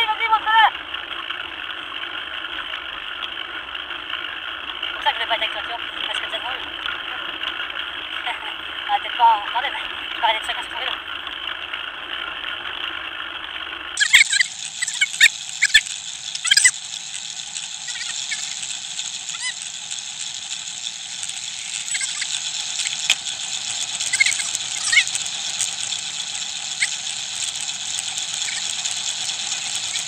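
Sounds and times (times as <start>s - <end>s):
short high squeaks: 14.0s - 16.9s, 17.8s - 19.7s, 21.4s - 27.6s, 28.3s - 30.0s
bicycle tyre hiss: 14.0s - 30.0s
sharp clicks: 14.0s - 30.0s.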